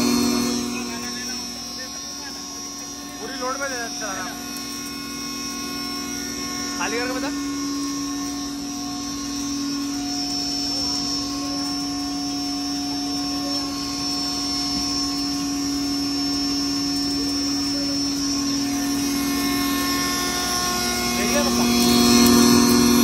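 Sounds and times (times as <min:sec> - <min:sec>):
constant whining tones: 0:00.0 - 0:23.0
grinder mechanical drone: 0:00.0 - 0:23.0.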